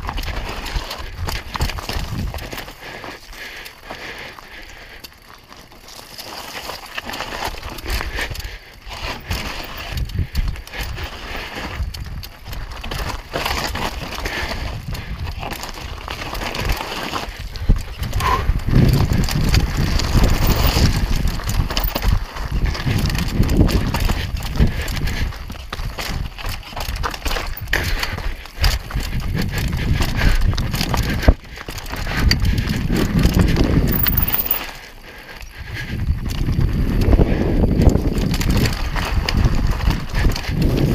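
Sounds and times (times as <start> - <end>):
wind rumble on microphone: 0.0 - 2.9, 7.4 - 40.9
tyres crunching over loose stones: 0.0 - 40.9
bike knocks and rattles: 5.1 - 34.7.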